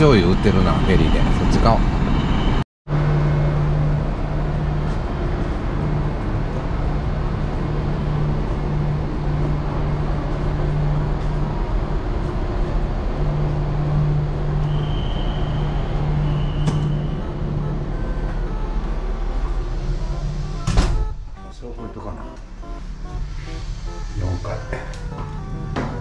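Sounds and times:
heavy vehicle engine drone: 0:01.3 - 0:26.0
low hum: 0:02.9 - 0:26.0
thin high tone: 0:14.7 - 0:26.0.

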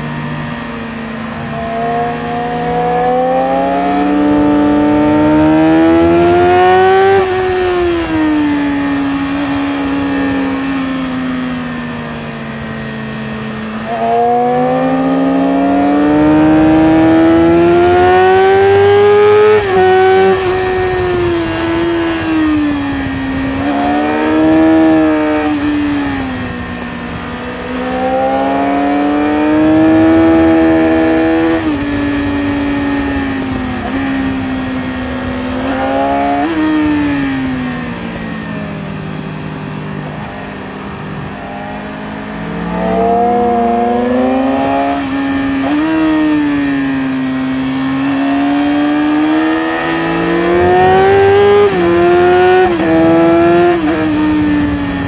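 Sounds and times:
motorcycle engine revving: 0:00.0 - 0:55.0
wind rush: 0:15.8 - 0:27.8, 0:49.2 - 0:55.0.

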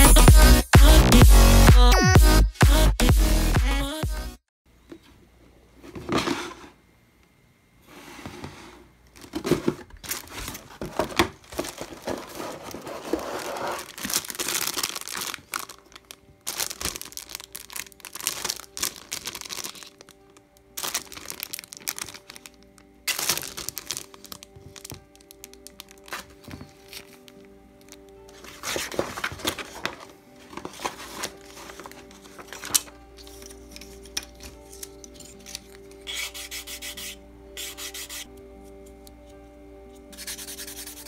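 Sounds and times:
plastic bags crinkling: 0:09.2 - 0:35.1
soft background music: 0:10.1 - 0:41.0.

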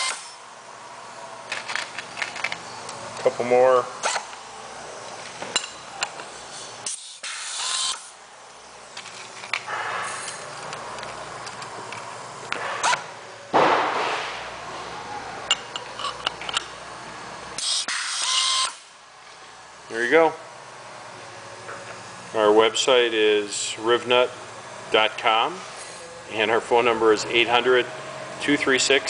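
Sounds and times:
pneumatic tool air hiss: 0:00.0 - 0:00.4, 0:06.5 - 0:08.2, 0:17.6 - 0:18.9.

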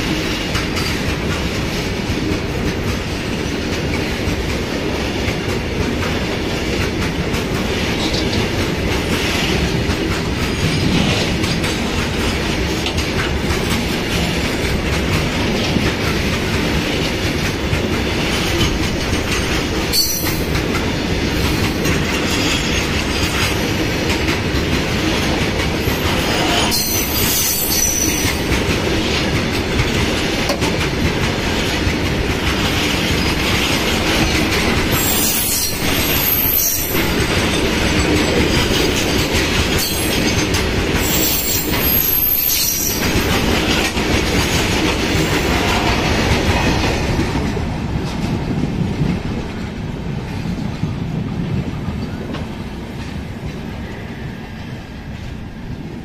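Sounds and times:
train wheels rumbling and clattering: 0:00.0 - 0:56.0
high-pitched wheel squeals: 0:26.2 - 0:28.4.

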